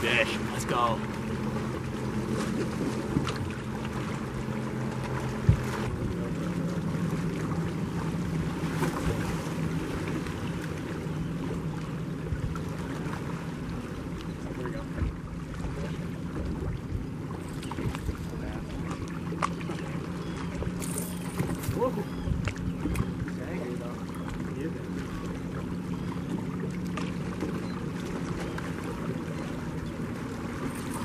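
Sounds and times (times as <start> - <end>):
electric trolling motor hum: 0.0 - 14.6
water lapping: 0.0 - 31.0.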